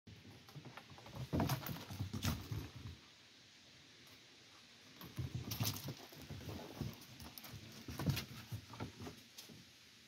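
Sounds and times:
paws scampering on wooden boards: 5.0 - 9.6.

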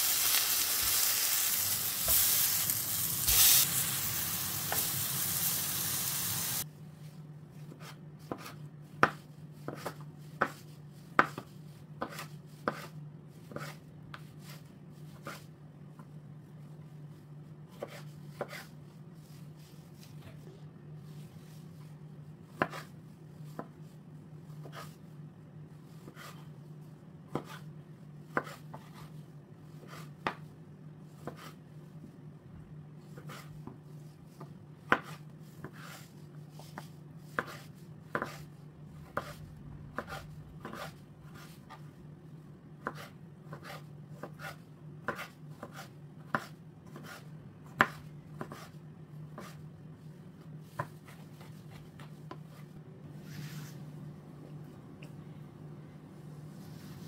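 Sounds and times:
steady low hum: 36.2 - 44.2.

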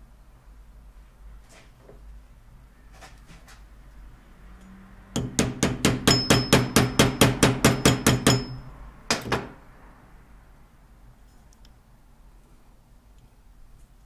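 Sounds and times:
metal-on-metal tapping: 4.6 - 9.6.

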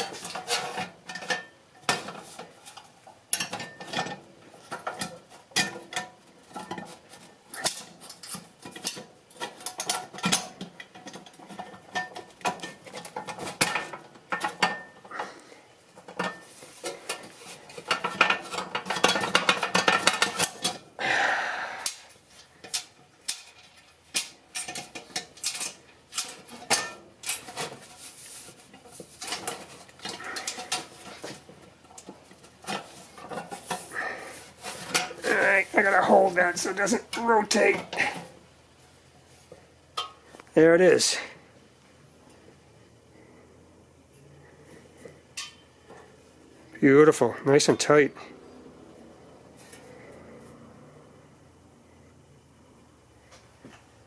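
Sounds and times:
sheet metal clinks and rattles: 0.0 - 15.4, 16.0 - 20.9, 22.6 - 38.3.

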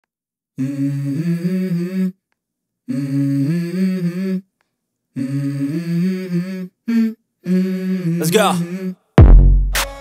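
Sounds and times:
person humming a melody: 0.6 - 2.2, 2.9 - 4.5, 5.2 - 9.1.

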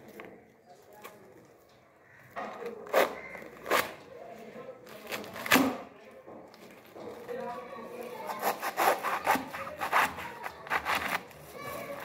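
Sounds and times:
cleaver cutting cabbage: 2.6 - 4.0, 4.9 - 5.8, 8.2 - 12.0.

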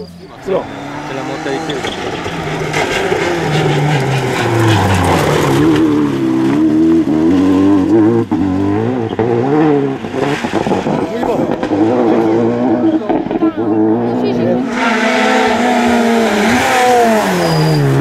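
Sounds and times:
gravel under tyres: 0.0 - 13.7
rally car engine revving: 0.0 - 18.0.

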